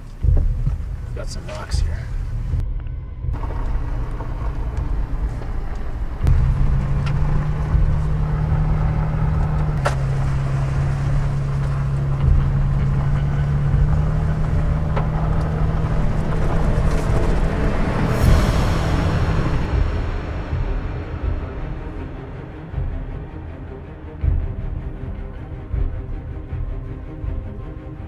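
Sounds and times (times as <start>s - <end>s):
vehicle engine droning: 0.0s - 24.9s
knocks and rattles: 3.3s - 19.8s.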